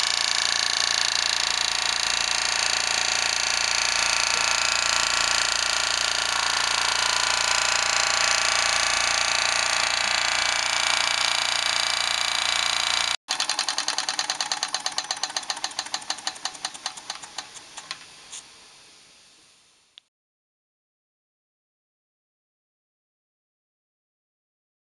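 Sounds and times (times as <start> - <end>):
toy steam engine hissing: 13.3 - 18.5.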